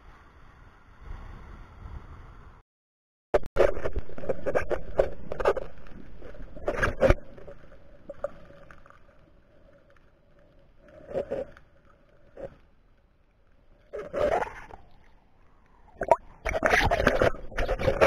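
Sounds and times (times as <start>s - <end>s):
underwater knocks and clatter: 3.6s - 9.2s, 16.0s - 18.0s.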